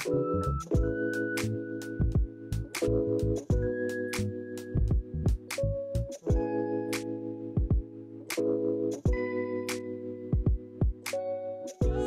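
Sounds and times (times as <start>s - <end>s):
music with held chords: 0.0s - 12.0s
drum beat: 2.0s - 2.3s, 7.6s - 7.9s, 10.4s - 11.0s.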